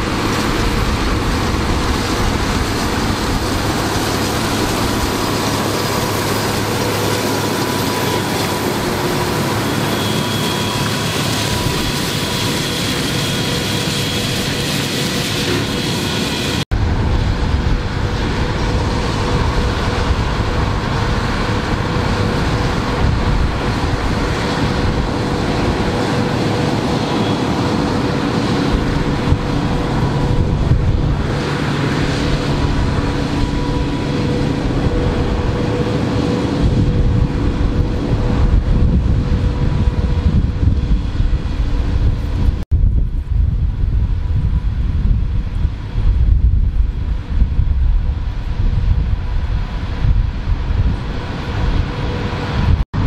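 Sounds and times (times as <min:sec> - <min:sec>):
flail mulcher whine: 0:00.0 - 0:42.6.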